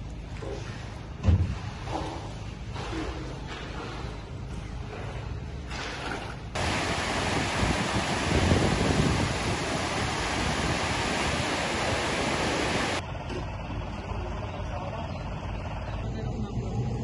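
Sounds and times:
river water rushing: 6.6s - 13.0s.

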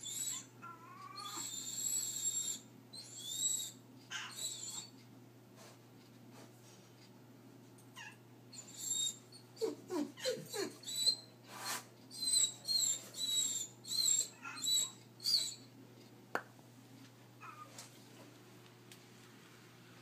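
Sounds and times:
dog whining: 0.0s - 4.9s, 8.0s - 15.7s, 17.4s - 17.8s.

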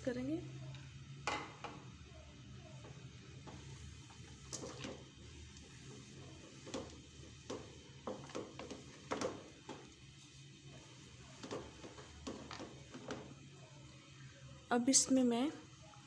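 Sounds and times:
spatula scraping and tapping pan: 2.8s - 13.4s.

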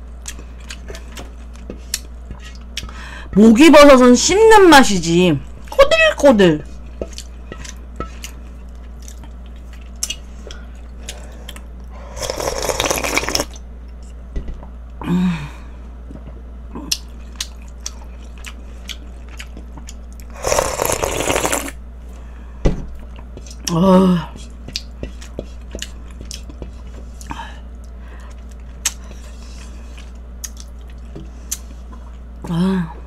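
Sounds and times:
low hum: 0.0s - 12.3s
slurping: 12.1s - 13.6s, 20.3s - 21.8s.

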